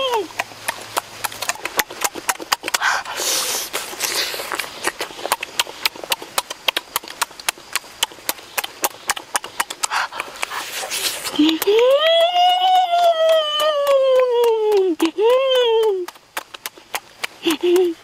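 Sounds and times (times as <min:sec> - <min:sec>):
person chewing with lip-smacking: 0:00.0 - 0:18.0
person slurping: 0:01.2 - 0:06.2, 0:09.4 - 0:11.7.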